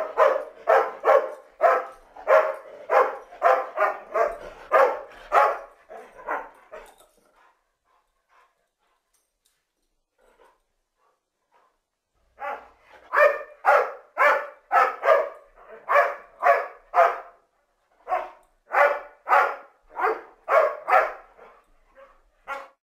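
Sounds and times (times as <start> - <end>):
dog barking: 0.0 - 6.6, 12.4 - 17.4, 18.0 - 22.8.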